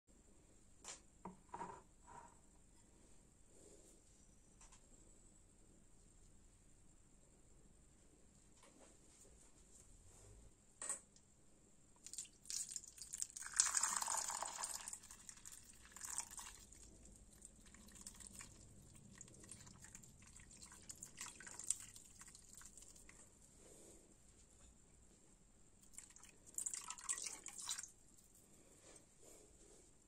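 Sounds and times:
water dripping and trickling: 12.0s - 23.2s, 25.8s - 28.3s
water pouring and splashing: 12.0s - 23.2s, 25.8s - 28.0s.

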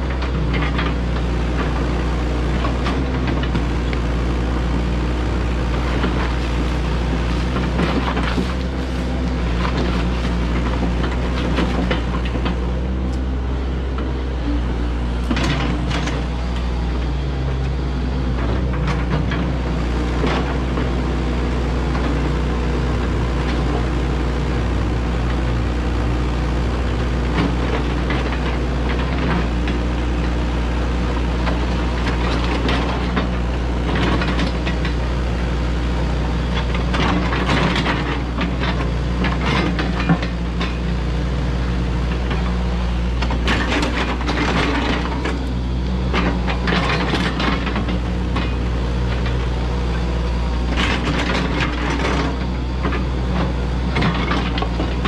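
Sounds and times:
excavator diesel engine running: 0.0s - 55.0s
bucket scraping through gravel: 5.8s - 11.0s.

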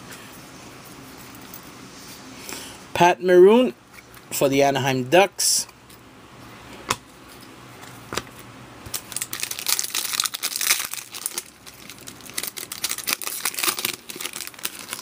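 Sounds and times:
foil wrapper crinkling and tearing: 8.9s - 15.0s.

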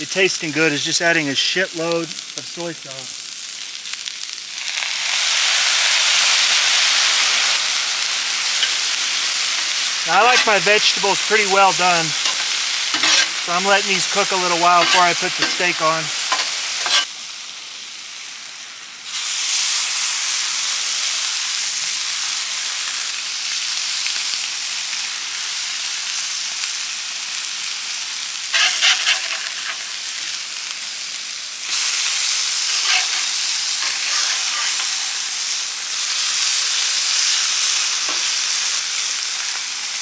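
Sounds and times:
food sizzling on a griddle: 0.0s - 40.0s
metal spatula scraping and tapping: 12.2s - 13.3s, 14.8s - 15.7s, 16.3s - 17.1s, 32.8s - 33.3s.

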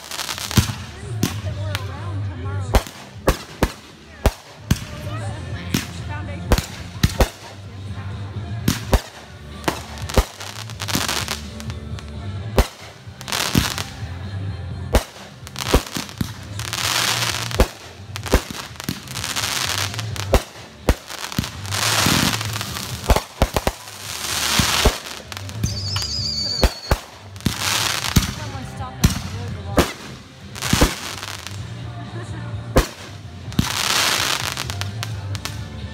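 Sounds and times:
fireworks bangs: 0.0s - 1.9s, 2.7s - 7.7s, 12.5s - 14.1s, 14.9s - 31.7s, 32.7s - 35.6s
fireworks crackling hiss: 0.0s - 7.8s, 8.6s - 14.2s, 14.9s - 32.0s, 32.6s - 35.9s.

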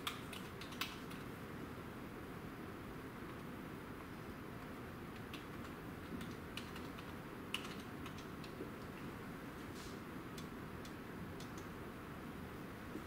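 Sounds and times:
keyboard keys clicking: 0.0s - 1.2s, 5.2s - 8.6s
low room noise: 0.0s - 13.0s.

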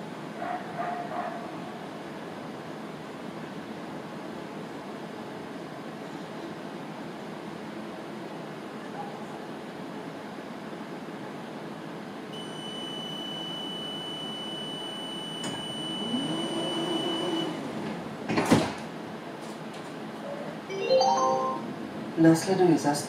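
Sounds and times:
door mechanism humming: 15.3s - 18.9s
doors shutting with a thump: 17.8s - 18.9s
chime of rising notes: 20.7s - 21.7s.

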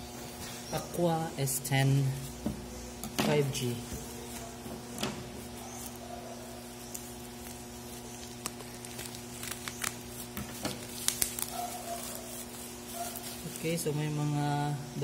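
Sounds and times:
steady low hum: 0.0s - 15.0s
bubble wrap crackling: 3.5s - 14.3s.

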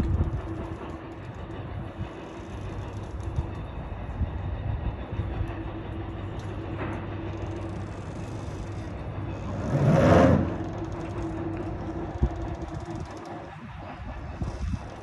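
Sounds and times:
boat engines droning: 0.0s - 15.0s
rushing water surge: 9.4s - 10.6s.

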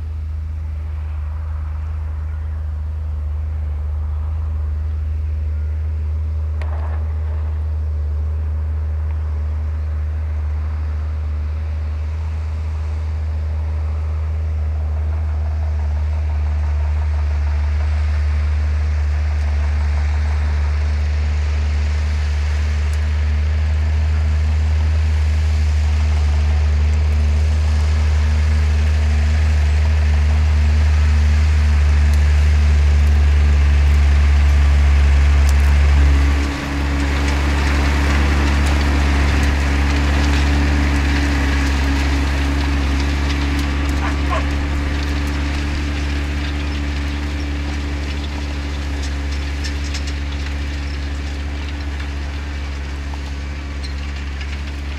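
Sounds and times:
tractor diesel engine under load: 0.0s - 54.9s.

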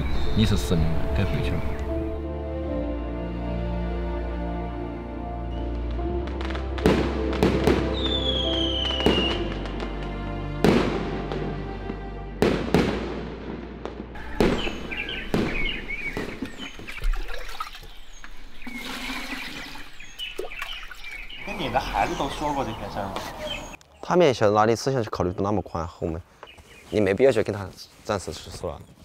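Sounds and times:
birds chirping: 0.0s - 2.2s, 14.1s - 29.0s
background music: 0.0s - 17.4s
fireworks banging: 6.2s - 11.5s, 12.4s - 16.8s
falling firework whistle: 7.7s - 9.6s, 14.2s - 16.2s.

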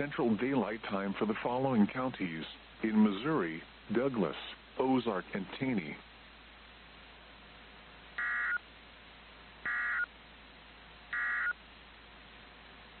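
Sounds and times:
faint steady hiss: 0.0s - 13.0s
short digital data bursts: 8.2s - 8.6s, 9.7s - 10.1s, 11.1s - 11.6s.

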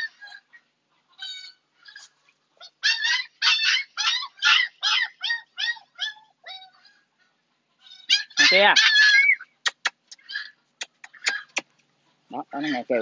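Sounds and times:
puppy yelping: 0.0s - 7.1s, 7.8s - 11.7s.

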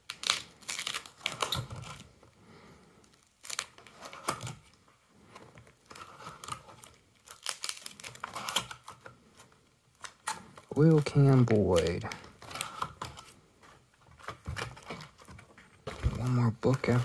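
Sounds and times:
plastic binder pages crinkling: 0.0s - 2.4s, 3.0s - 17.0s.

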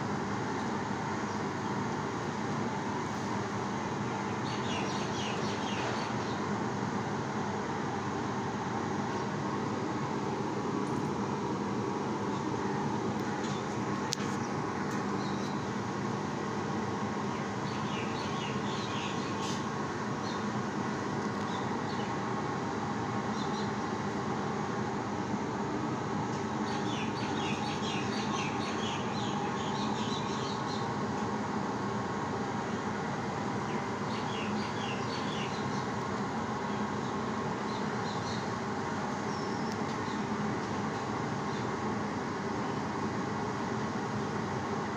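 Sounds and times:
small birds chirping: 4.2s - 6.5s, 17.2s - 20.5s, 26.6s - 31.0s, 33.7s - 36.0s, 36.6s - 38.6s, 39.2s - 40.3s.

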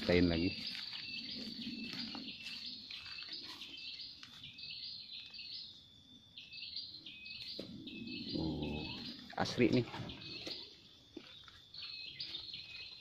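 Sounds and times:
footsteps on dry leaf litter: 0.0s - 5.4s
high repeating animal call: 7.7s - 9.8s.

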